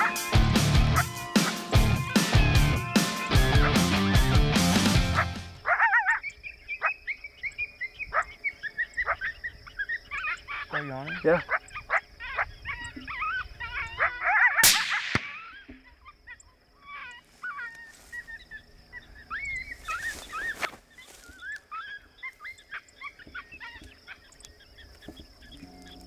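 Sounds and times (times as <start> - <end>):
high insect trill: 0.0 - 26.0
high yelping and whining cries: 5.1 - 7.0, 8.1 - 20.8
rifle shot: 14.6 - 15.6.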